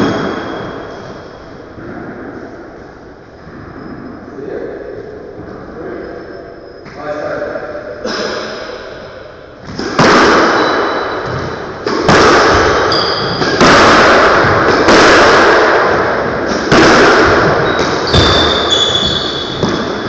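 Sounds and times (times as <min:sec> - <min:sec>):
squash ball hits echoing: 0:00.0 - 0:02.4, 0:08.2 - 0:20.0
shoes squeaking on wooden floor: 0:12.9 - 0:13.5, 0:17.6 - 0:20.0.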